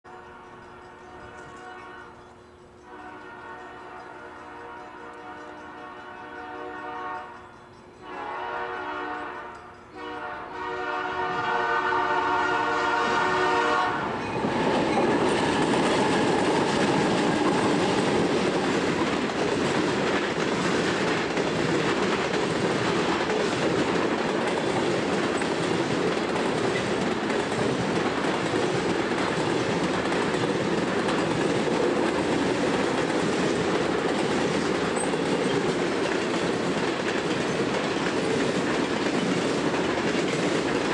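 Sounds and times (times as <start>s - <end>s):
locomotive air horn chord: 0.1s - 18.4s
train wheels rumbling on rails: 0.1s - 40.9s.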